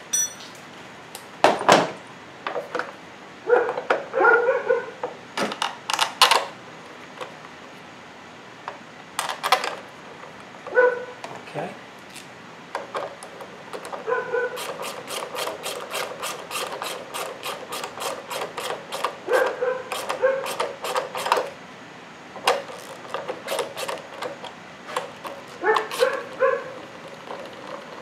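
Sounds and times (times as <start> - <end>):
hand ratchet clicking: 14.6 - 19.2, 19.9 - 21.5.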